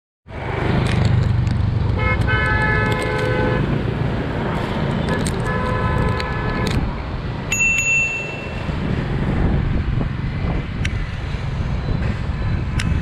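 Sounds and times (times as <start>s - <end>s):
steady traffic: 0.2s - 13.0s
wind noise: 0.4s - 13.0s
vehicle horn honking: 2.0s - 3.7s, 5.0s - 6.8s.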